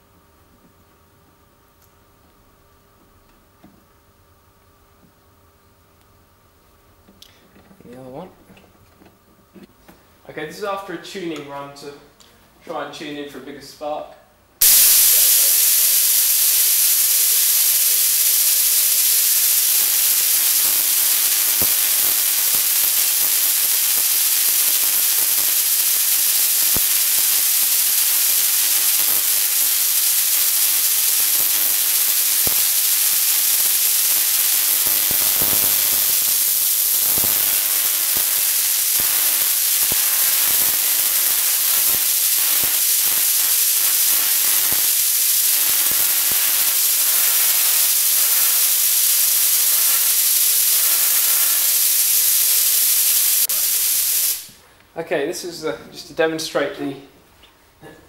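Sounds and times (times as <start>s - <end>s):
sharp electric crackles: 14.6s - 54.6s
tesla coil buzzing: 14.6s - 54.6s.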